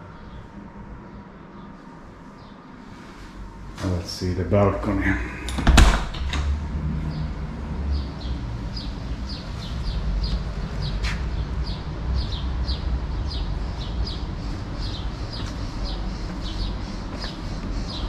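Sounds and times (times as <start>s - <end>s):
low rumble: 4.9s - 17.9s
bird chirping: 7.1s - 18.0s.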